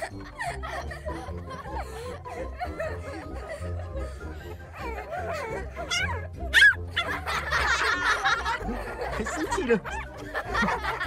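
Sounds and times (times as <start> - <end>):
background music: 0.0 - 11.0
puppy high cry: 4.8 - 7.2
puppy yipping and whining: 5.8 - 7.2.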